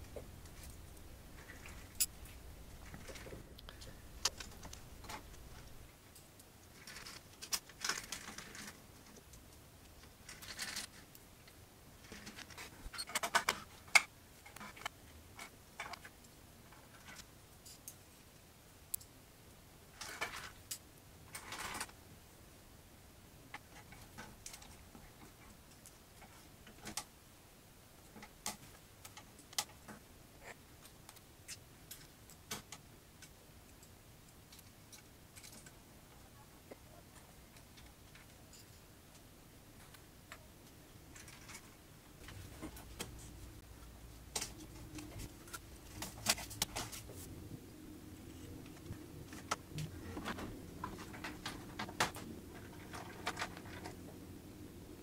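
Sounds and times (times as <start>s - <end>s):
plastic and metal parts scraping: 6.8s - 9.2s, 10.2s - 11.0s, 12.0s - 16.1s, 44.3s - 47.2s, 48.3s - 54.0s.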